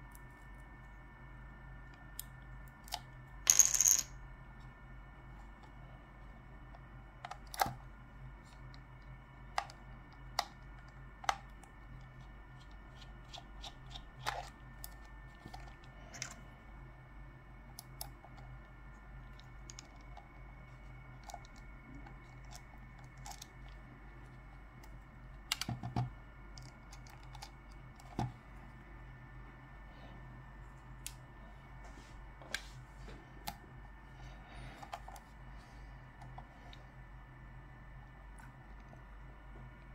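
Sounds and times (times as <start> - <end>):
faint steady hum: 0.0 - 39.9.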